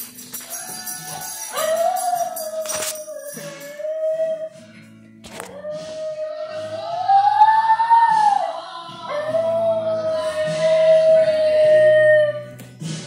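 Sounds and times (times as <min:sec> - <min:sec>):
background music: 0:00.0 - 0:13.0
dog howling: 0:00.5 - 0:04.6, 0:05.3 - 0:12.6.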